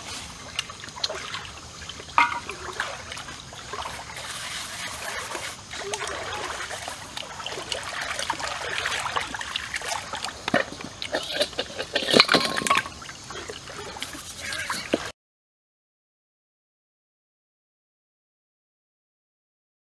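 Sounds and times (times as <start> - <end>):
stream water trickling: 0.0 - 15.1.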